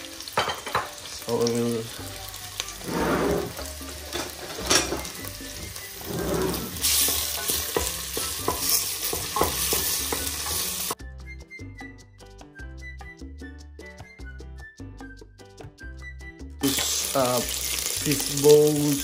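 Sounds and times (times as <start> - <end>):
prawn shells sizzling in oil: 0.0 - 11.0, 16.6 - 19.0
background music: 0.0 - 19.0
wooden spoon scraping a pot: 2.8 - 3.7, 5.9 - 7.8.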